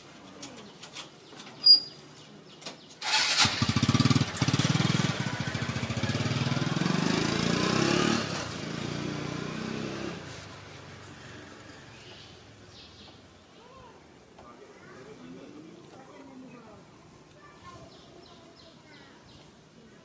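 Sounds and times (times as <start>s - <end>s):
sharp high squeak: 1.6s - 2.0s
small engine puttering: 3.0s - 10.1s.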